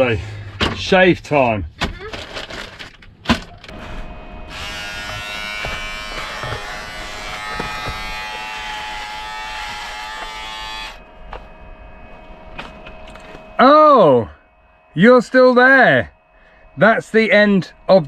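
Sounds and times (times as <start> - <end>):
electric shaver buzzing: 4.0 - 13.6.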